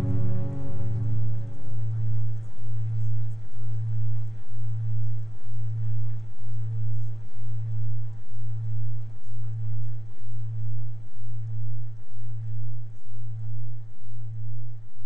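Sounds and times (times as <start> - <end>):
deep pulsing electronic hum: 0.0 - 3.8.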